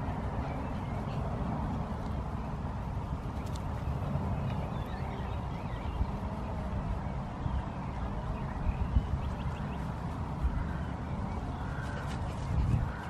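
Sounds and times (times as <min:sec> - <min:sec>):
wind gusting on microphone: 0:00.0 - 0:13.0.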